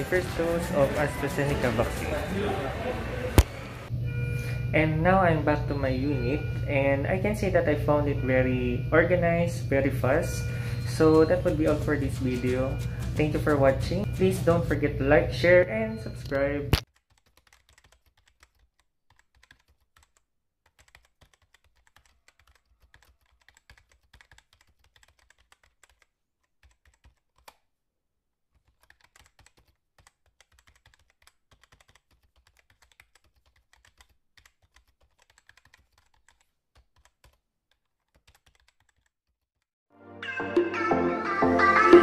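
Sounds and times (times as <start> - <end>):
music: 0.0 - 3.2, 10.8 - 14.9, 39.9 - 42.0
computer keyboard typing: 10.8 - 14.8, 16.1 - 27.6, 28.6 - 39.2.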